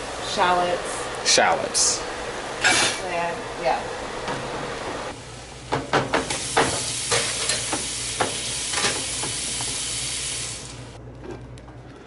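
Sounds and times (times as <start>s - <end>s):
vegetables sizzling in frying pan: 5.1s - 11.0s.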